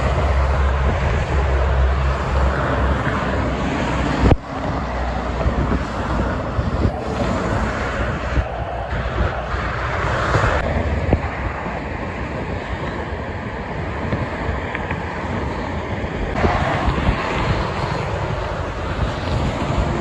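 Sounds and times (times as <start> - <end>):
road traffic rushing: 0.0 - 20.0
wind buffeting microphone: 0.0 - 20.0.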